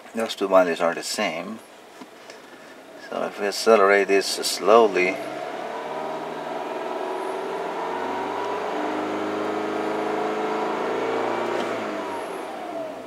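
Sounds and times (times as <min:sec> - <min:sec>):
car engine revving: 0:04.8 - 0:13.0.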